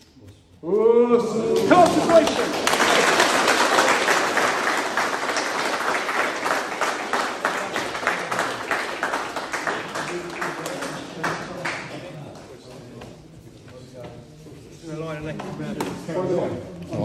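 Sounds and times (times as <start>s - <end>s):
crowd applauding: 1.4s - 12.6s
close hand claps: 1.5s - 12.6s.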